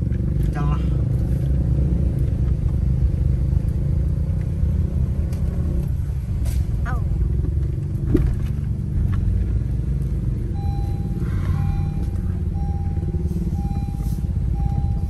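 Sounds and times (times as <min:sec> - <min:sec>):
car cabin rumble: 0:06.8 - 0:15.0
high steady beep: 0:10.5 - 0:15.0.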